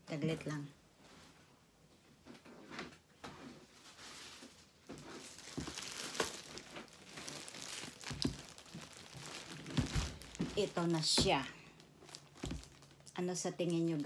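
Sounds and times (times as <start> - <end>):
plastic bag crinkling: 3.8 - 14.0.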